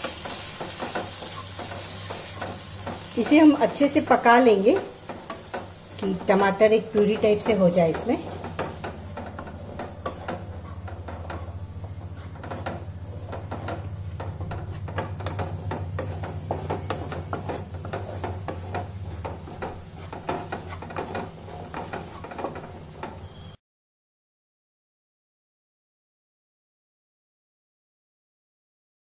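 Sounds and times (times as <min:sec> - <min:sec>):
wooden spatula scraping a pan: 0:00.0 - 0:23.6
steady low hum: 0:00.2 - 0:23.0
spatula knocking against pan: 0:04.7 - 0:23.2.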